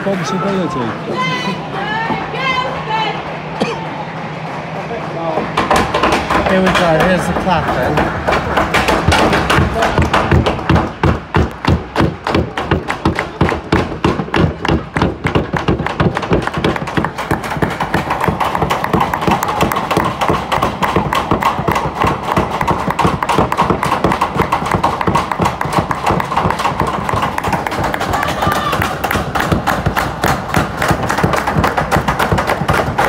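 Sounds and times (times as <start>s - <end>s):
crowd voices: 0.0s - 33.0s
crowd clapping: 6.6s - 33.0s.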